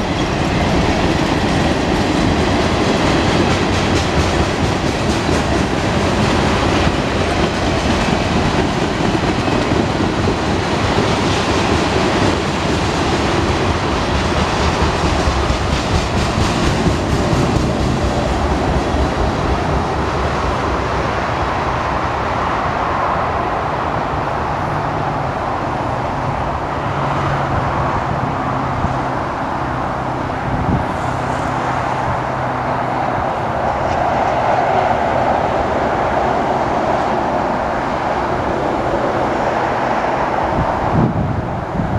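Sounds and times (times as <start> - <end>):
train wheels clicking over rails: 0.0 - 22.1
freeway traffic: 0.0 - 41.9
trucks passing: 0.0 - 41.9.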